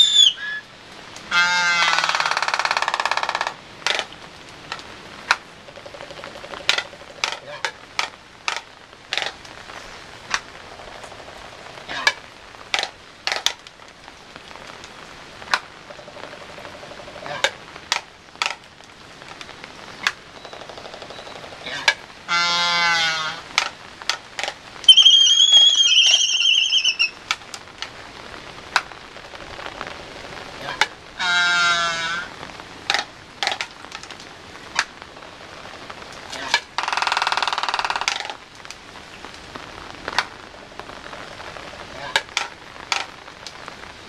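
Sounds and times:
high whistled bird call: 0:00.0 - 0:00.6, 0:24.9 - 0:27.2
long wavering bird call: 0:00.0 - 0:00.7, 0:24.9 - 0:27.2
albatross bill clacks: 0:04.7 - 0:09.4, 0:42.1 - 0:43.2.

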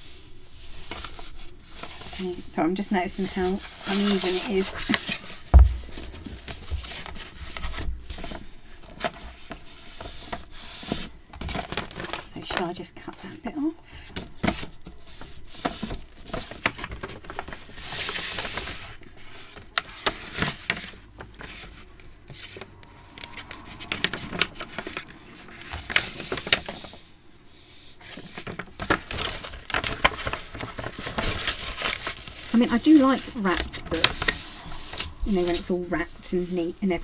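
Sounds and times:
paper rustling and crinkling: 0:00.0 - 0:37.0.

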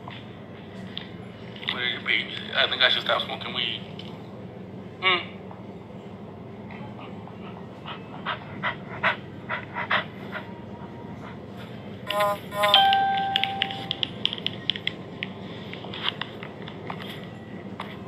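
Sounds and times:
two-note chime: 0:12.1 - 0:14.0.

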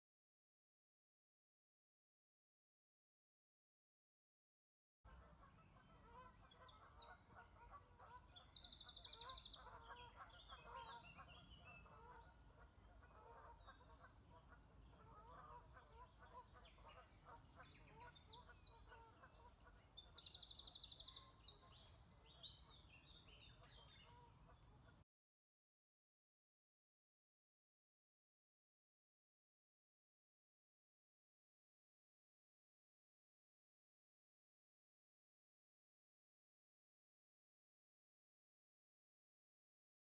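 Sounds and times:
songbird trilling: 0:06.0 - 0:11.0, 0:17.6 - 0:23.3.

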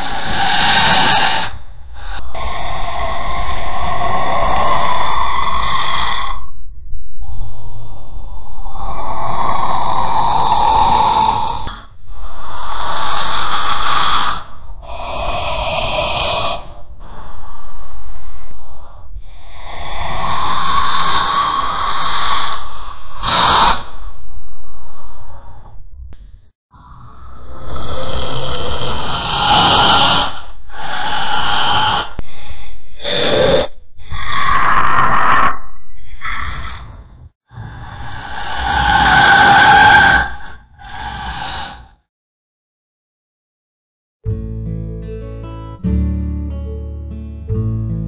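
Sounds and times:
raspy hissing: 0:07.2 - 0:24.2, 0:37.6 - 0:42.0.

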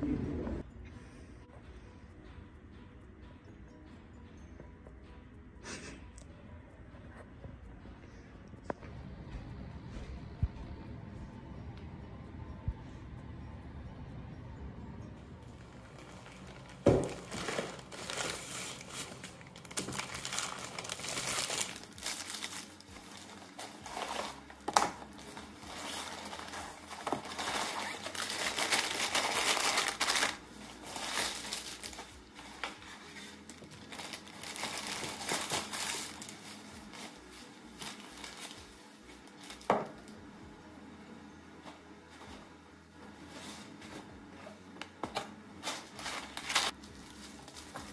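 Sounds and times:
plastic bags rustling: 0:15.6 - 0:40.0, 0:45.1 - 0:47.9
items knocking on counter: 0:16.8 - 0:17.3.

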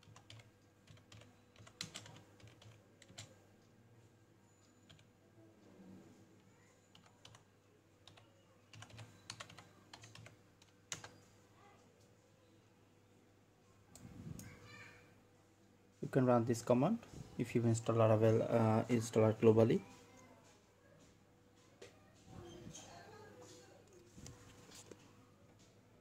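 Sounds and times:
typing on computer keyboard: 0:00.0 - 0:03.4, 0:04.8 - 0:05.1, 0:06.9 - 0:11.2.

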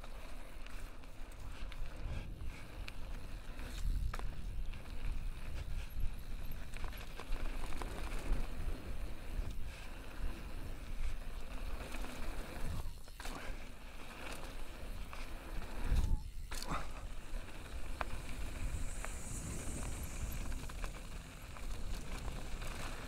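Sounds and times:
bike clicks and rattles: 0:00.0 - 0:23.0
tyres hissing on dirt trail: 0:00.0 - 0:23.0
wind buffeting microphone: 0:14.9 - 0:23.0.

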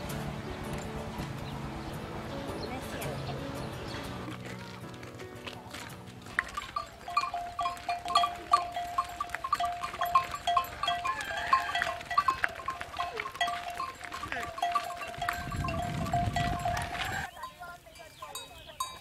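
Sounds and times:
animal bells clanking: 0:06.2 - 0:19.0.

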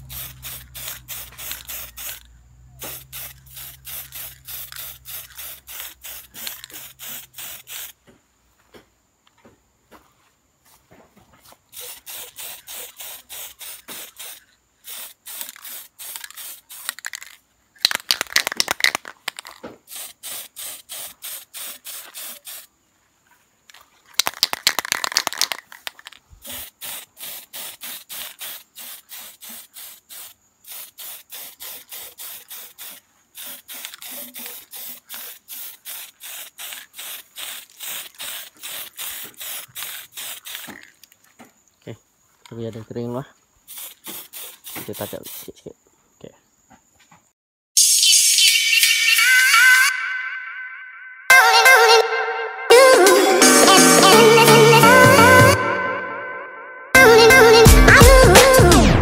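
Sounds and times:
aerosol spray can hissing: 0:00.0 - 0:08.0, 0:11.7 - 0:22.7, 0:24.2 - 0:41.1, 0:43.7 - 0:45.6.

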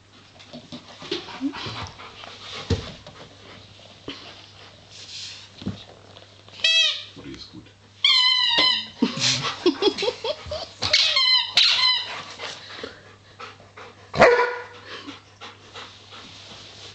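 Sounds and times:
squeaky toy squeaking: 0:06.6 - 0:07.1, 0:08.0 - 0:09.0, 0:10.8 - 0:12.1.

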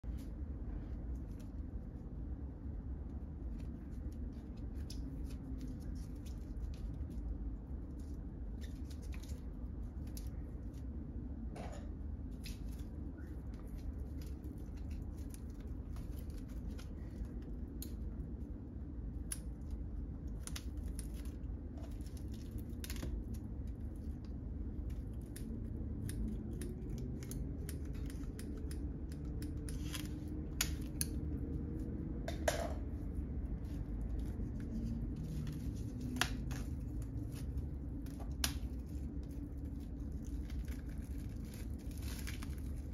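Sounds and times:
low hum: 0:00.0 - 0:42.9
plastic wrap crinkling and tearing: 0:01.1 - 0:11.4, 0:12.2 - 0:32.3, 0:32.9 - 0:42.9
scissors snipping plastic: 0:19.2 - 0:31.7.

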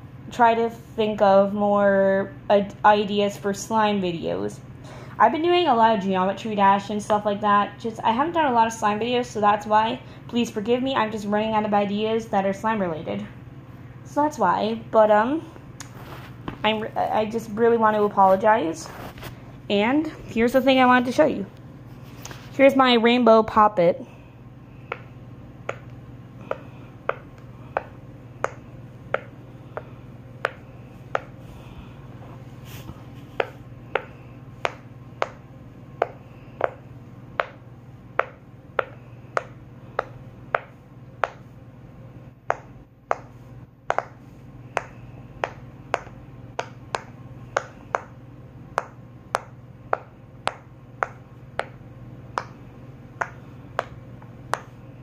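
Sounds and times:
low steady hum: 0:00.0 - 0:55.0.

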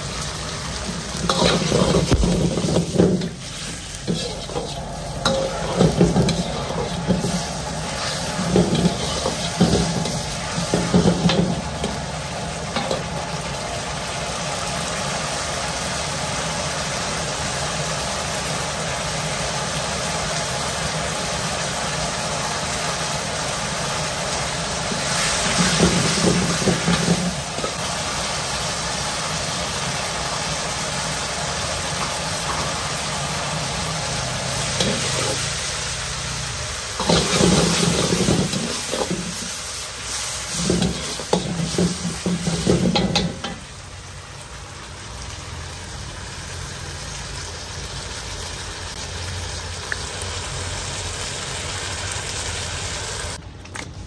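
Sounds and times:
food sizzling in a hot pan: 0:00.0 - 0:53.4
stirring in a pan: 0:00.5 - 0:13.2, 0:33.5 - 0:36.4, 0:37.0 - 0:43.7.

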